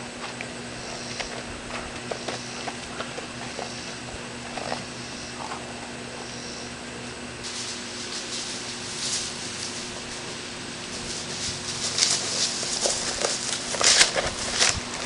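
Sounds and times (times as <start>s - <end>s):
low steady hum: 0.0s - 15.0s
even hiss: 4.7s - 15.0s.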